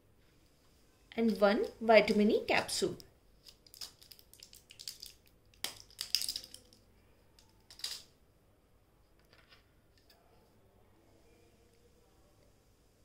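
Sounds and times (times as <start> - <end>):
clinks of small hard objects: 3.7 - 6.8, 7.7 - 8.1.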